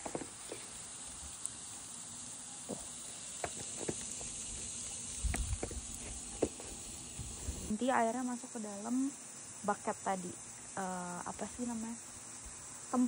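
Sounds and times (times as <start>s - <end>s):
water spraying from hose coupling: 0.0s - 7.7s
water running into a hose: 0.0s - 7.8s.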